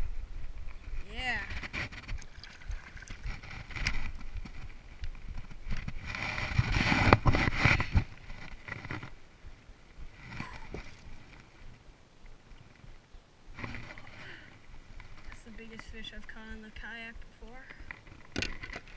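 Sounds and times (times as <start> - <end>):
hand rubbing against camera: 1.0 - 9.2.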